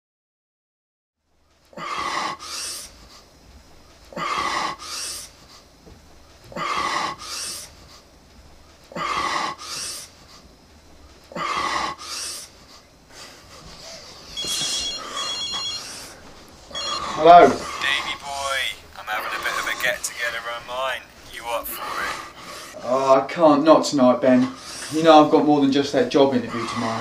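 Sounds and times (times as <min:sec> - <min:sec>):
telephone ringing: 0:14.4 - 0:22.1.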